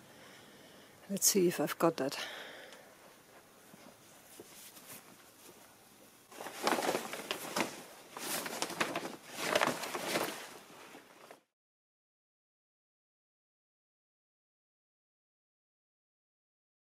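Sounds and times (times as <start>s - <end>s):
plastic sheet rustling and flapping: 6.3s - 11.5s.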